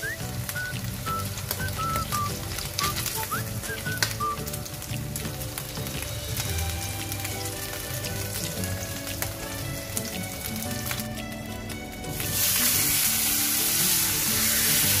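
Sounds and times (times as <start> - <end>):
meat sizzling in hot oil: 0.0 - 15.0.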